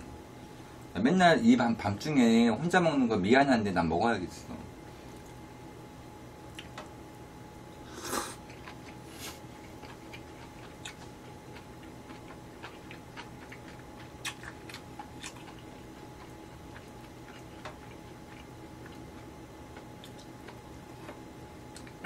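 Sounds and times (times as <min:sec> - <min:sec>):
soft chewing with mouth clicks: 0:05.0 - 0:05.5, 0:06.5 - 0:06.9, 0:08.0 - 0:22.0
noodle slurp: 0:07.9 - 0:08.4.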